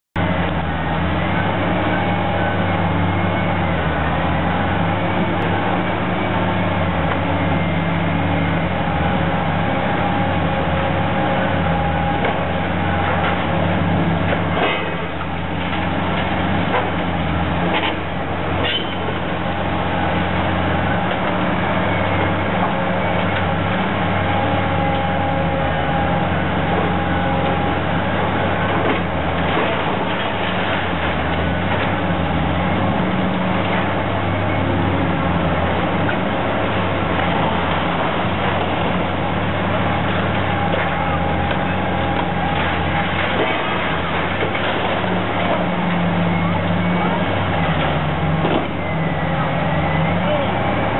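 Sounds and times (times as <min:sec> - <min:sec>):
excavator diesel engine running: 0:00.1 - 0:50.9
demolition attachment tearing structure: 0:11.9 - 0:21.3, 0:26.6 - 0:32.8, 0:35.2 - 0:49.3
debris clanking and crashing: 0:12.0 - 0:34.6, 0:35.2 - 0:49.8.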